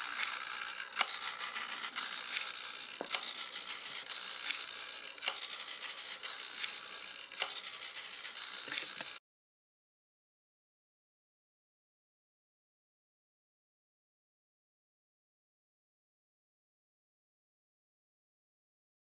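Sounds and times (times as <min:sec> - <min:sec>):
servo whirring: 0:00.0 - 0:09.2
sharp click: 0:00.1 - 0:07.7.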